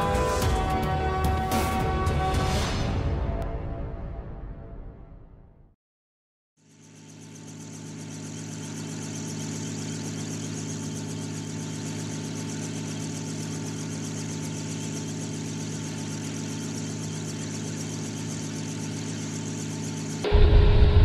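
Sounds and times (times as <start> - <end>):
aircraft engine drone: 6.8 - 21.0.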